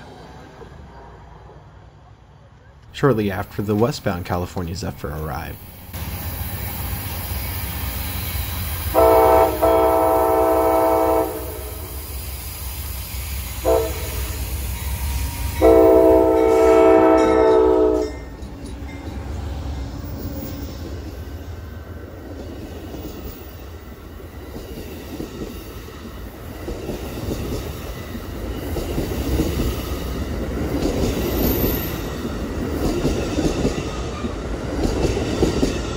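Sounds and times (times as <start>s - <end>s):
train rumbling: 0.0s - 35.9s
train air horn blasts: 8.9s - 12.1s, 13.6s - 14.4s, 15.5s - 18.2s.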